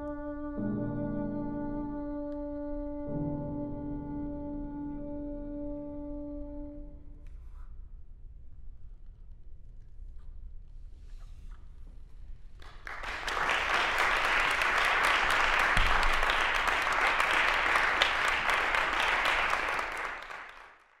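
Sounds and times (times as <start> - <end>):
audience applauding: 12.6 - 21.0.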